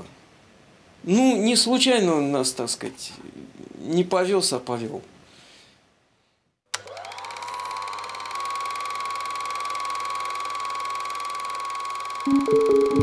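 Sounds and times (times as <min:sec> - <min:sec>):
film projector motor whine: 0:06.8 - 0:12.3.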